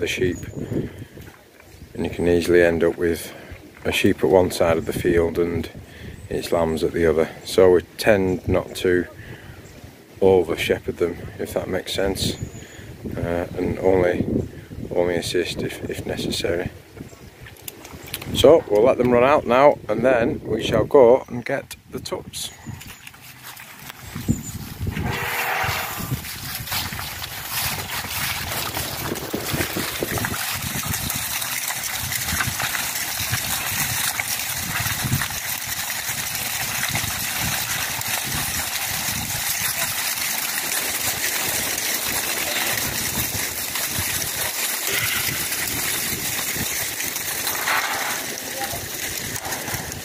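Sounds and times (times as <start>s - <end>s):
hooves trampling wet mud: 17.0s - 19.3s, 22.5s - 50.0s.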